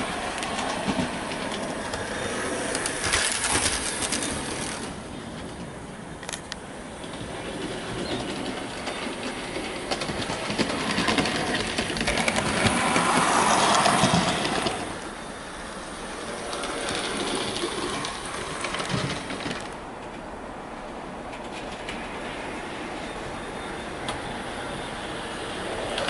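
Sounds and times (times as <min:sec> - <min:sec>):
model train motor whirring: 0:00.0 - 0:05.1, 0:06.2 - 0:19.8
model train wheel clicks: 0:00.2 - 0:05.0, 0:06.2 - 0:15.0, 0:16.2 - 0:20.1.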